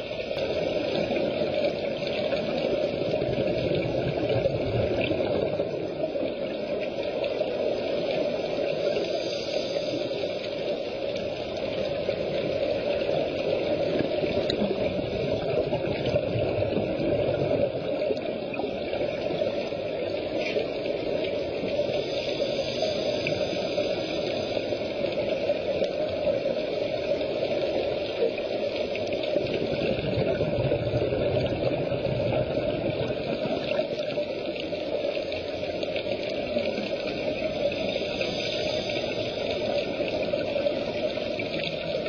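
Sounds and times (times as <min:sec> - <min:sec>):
underwater rushing water: 0:00.0 - 0:42.0
bubbling exhaled air: 0:29.0 - 0:42.0.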